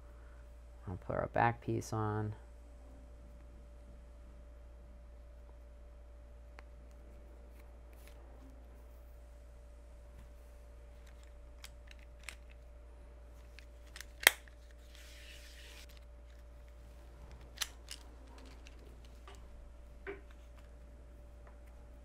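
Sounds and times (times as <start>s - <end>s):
cable stripper snapping: 13.9s - 14.6s.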